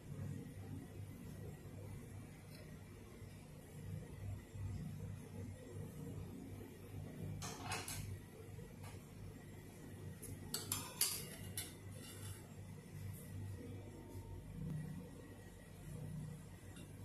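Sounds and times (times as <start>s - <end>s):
steady low hum: 0.0s - 17.0s
fork clinking on ceramic plate: 10.5s - 12.4s.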